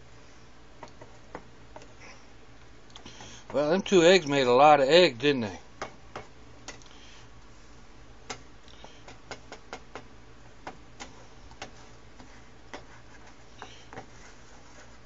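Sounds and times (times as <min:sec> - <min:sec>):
low steady hum: 0:00.0 - 0:15.0
spatula tapping a skillet: 0:08.3 - 0:14.1.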